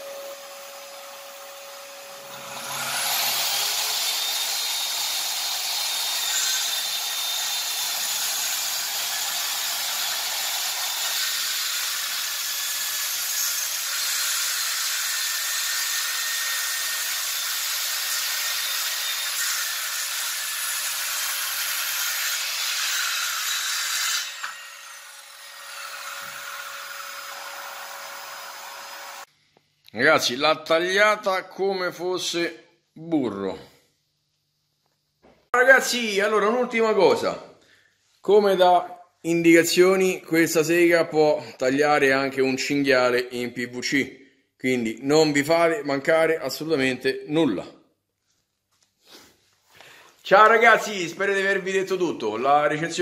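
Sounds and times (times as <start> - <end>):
circular saw cutting wood: 0.0 - 29.3.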